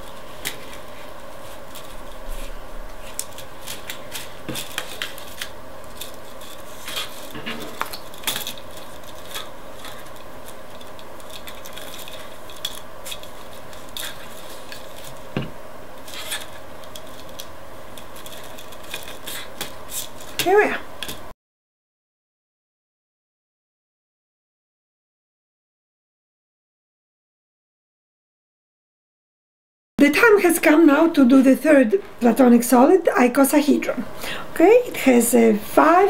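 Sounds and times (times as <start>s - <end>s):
plastic straws clicking and rustling: 0.0s - 15.3s, 16.0s - 21.2s
faint steady hum: 0.0s - 21.3s, 30.0s - 36.0s.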